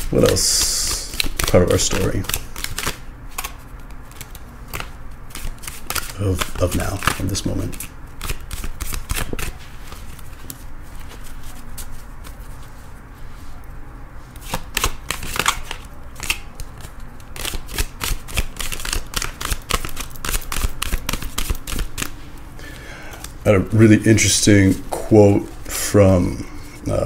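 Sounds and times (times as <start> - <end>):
cards being shuffled by hand: 0.0 - 13.6, 14.3 - 22.2.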